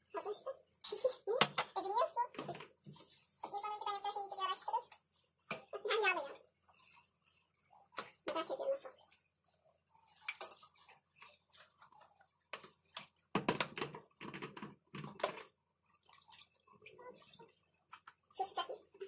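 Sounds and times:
plastic colander handled: 11.6 - 15.6.

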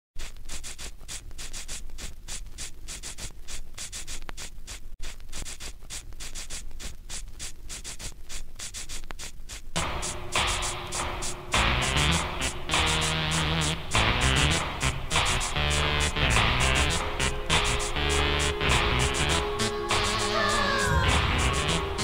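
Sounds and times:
fast hissy scratching rhythm: 0.2 - 22.0
music track: 9.8 - 22.0.

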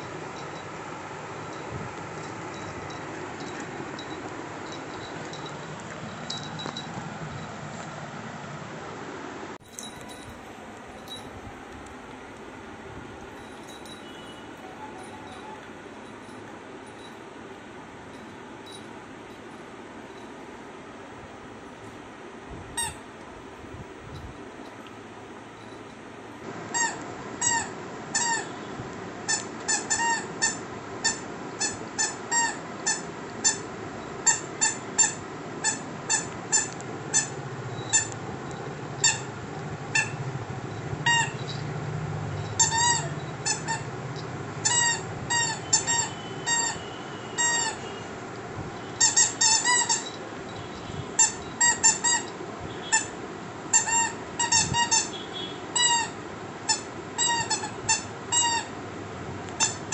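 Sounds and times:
rubber squeaky toy squeaking: 22.8 - 23.0, 26.7 - 28.6, 29.3 - 38.2, 39.0 - 39.3, 39.9 - 40.3, 41.0 - 41.6, 42.4 - 44.0, 44.6 - 47.9, 49.0 - 50.2, 51.2 - 55.2, 55.8 - 58.8, 59.6 - 59.9.

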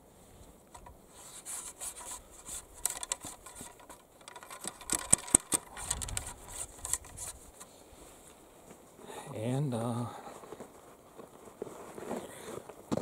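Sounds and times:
scraping and rubbing in gun barrel: 0.8 - 7.8, 10.4 - 13.0.

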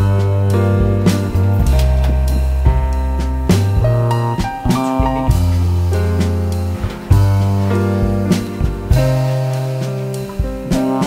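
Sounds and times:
guitar-led instrumental music: 0.0 - 11.0.

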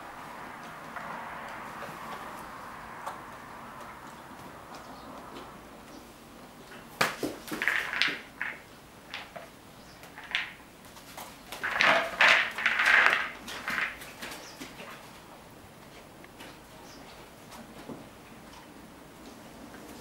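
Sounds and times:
treat ball rattling with pellets: 7.2 - 10.6, 11.6 - 14.1.

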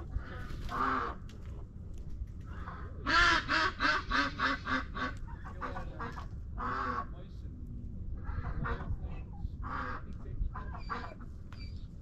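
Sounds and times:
farmyard bird calling: 2.5 - 7.3, 8.2 - 12.0.

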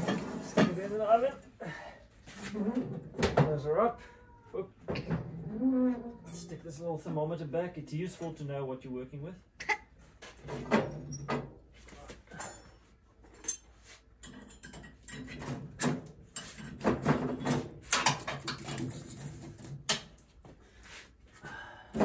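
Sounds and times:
metal clanks of wood stove: 13.4 - 18.9.

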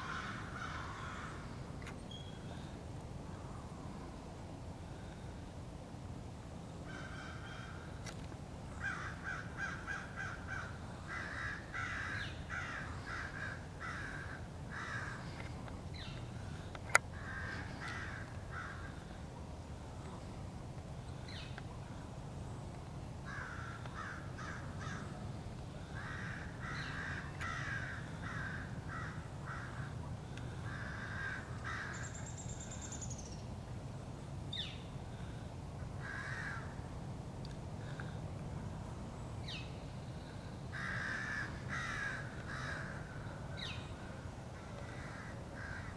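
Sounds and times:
crows cawing: 0.0 - 1.6, 6.9 - 8.0, 8.8 - 15.6, 16.9 - 19.2, 23.2 - 25.2, 25.8 - 33.0, 36.0 - 36.8, 40.7 - 43.8, 44.6 - 45.9.

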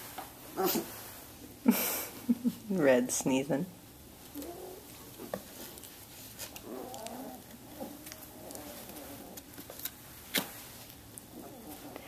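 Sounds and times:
puppies growling: 0.6 - 1.0, 4.3 - 9.8, 11.2 - 12.0.

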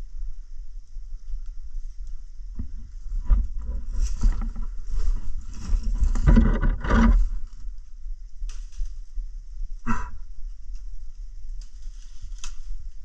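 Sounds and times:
branches rustling and scraping: 0.8 - 9.7, 10.4 - 13.0
footsteps crunching through brush: 2.6 - 7.8.

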